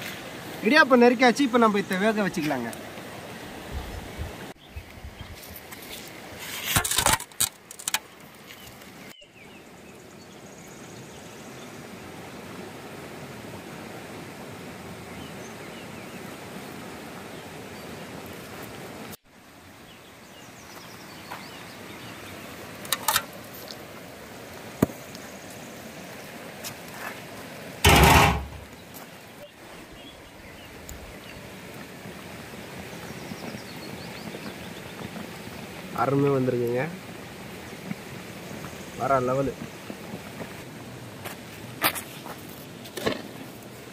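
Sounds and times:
river rushing: 0.0 - 4.6
pot thump: 27.8 - 28.6.

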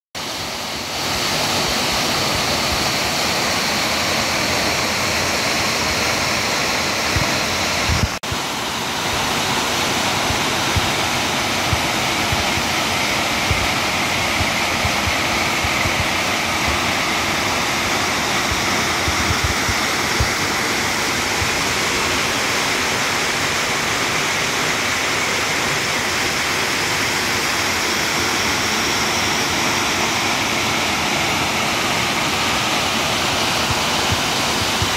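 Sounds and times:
waterfall rushing over rocks: 0.2 - 34.9.

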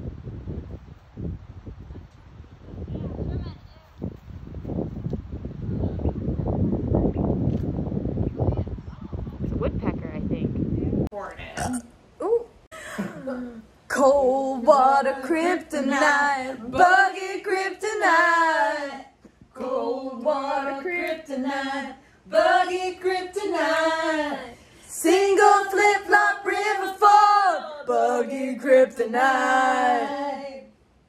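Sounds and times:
voices singing unaccompanied: 13.0 - 31.0.

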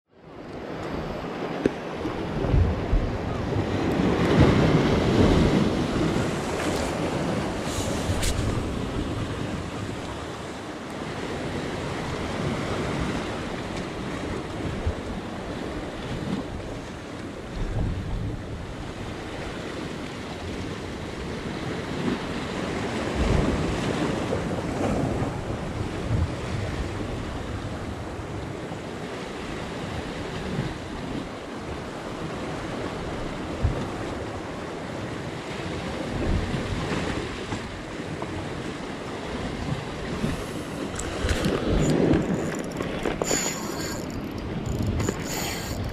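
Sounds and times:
wind buffeting the microphone: 0.6 - 10.4, 11.1 - 45.9
surf breaking over rocks: 36.0 - 45.9.

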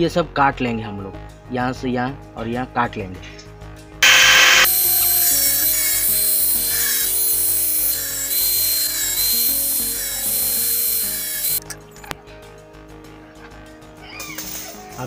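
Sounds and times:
background music: 0.0 - 4.0, 4.8 - 15.0
angle grinder cutting wire: 4.0 - 11.6.

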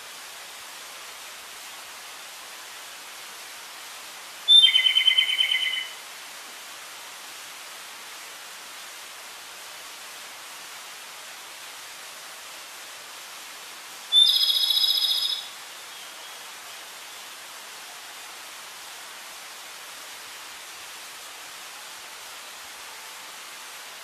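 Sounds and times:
steady hiss: 0.0 - 24.0
bird trilled call: 4.5 - 6.0, 14.1 - 15.6.

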